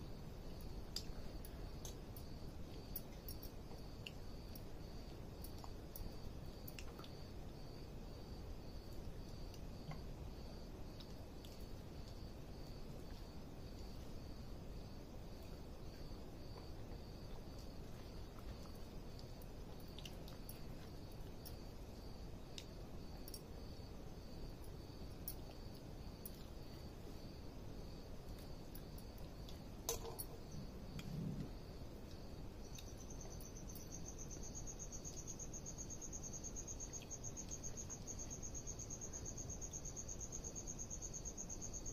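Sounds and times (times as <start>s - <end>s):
cricket chirping: 0.0s - 41.9s
low background noise: 0.0s - 41.9s.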